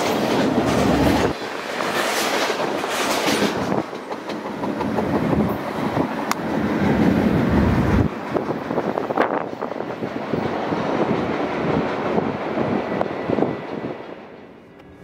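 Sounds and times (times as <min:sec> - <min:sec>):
train wheels clacking over joints: 0:00.0 - 0:07.2.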